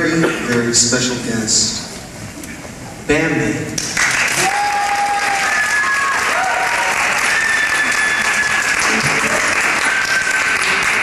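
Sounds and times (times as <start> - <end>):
audience clapping: 3.8 - 11.0.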